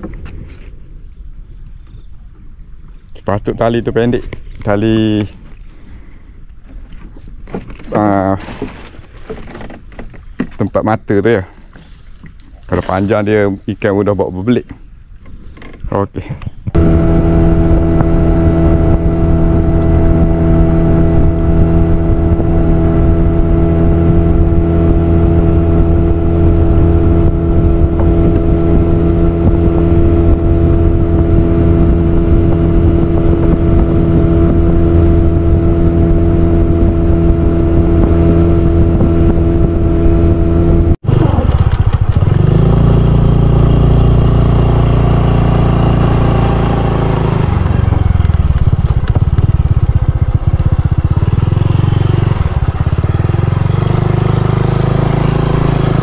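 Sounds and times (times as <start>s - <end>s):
small engine running: 16.8s - 56.0s.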